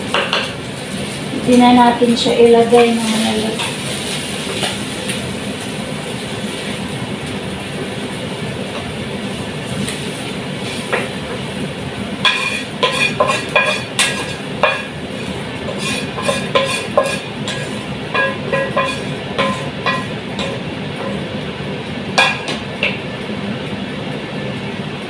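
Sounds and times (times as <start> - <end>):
spatula scraping frying pan: 9.8 - 11.2, 12.2 - 21.2
wooden spatula knocking on pan: 12.2 - 14.9, 16.2 - 20.6.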